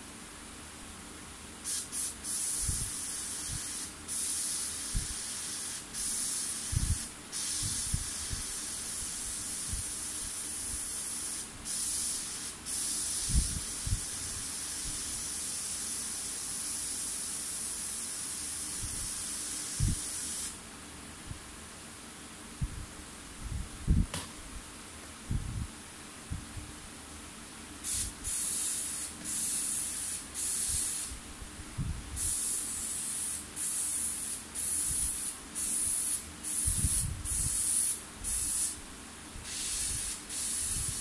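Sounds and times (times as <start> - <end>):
airbrush air hiss: 1.6 - 20.6, 27.8 - 31.2, 32.1 - 38.8, 39.4 - 41.0.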